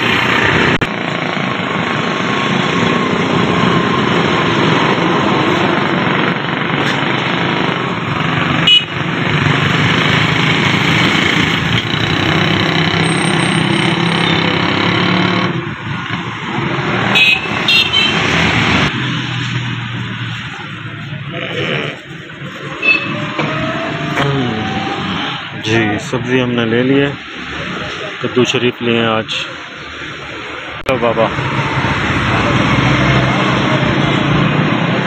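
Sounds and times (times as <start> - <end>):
motorcycle engines running: 0.0 - 26.0
street traffic: 0.0 - 35.0.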